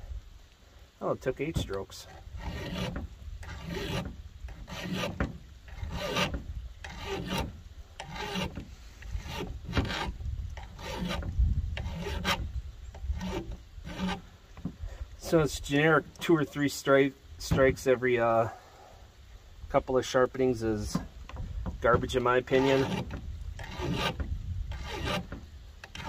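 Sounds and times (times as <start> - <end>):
file rasping on metal: 2.1 - 14.2, 21.9 - 26.0.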